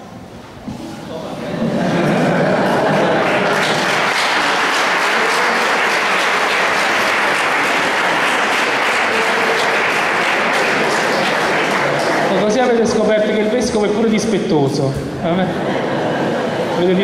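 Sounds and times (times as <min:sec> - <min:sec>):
audience applauding: 0:01.8 - 0:13.2.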